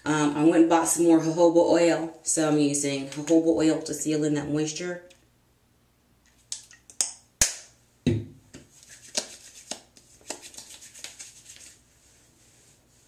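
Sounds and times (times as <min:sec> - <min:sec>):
hands rubbing oil: 0:08.6 - 0:13.0.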